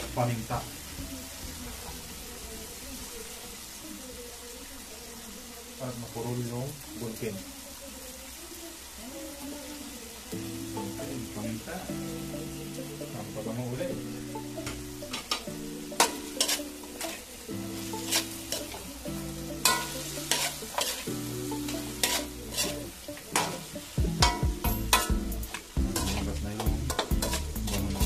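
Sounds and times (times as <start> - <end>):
meat sizzling in a pan: 0.0 - 28.0
metal spoon scraping a wok: 15.1 - 17.3, 18.0 - 18.8, 19.6 - 28.0.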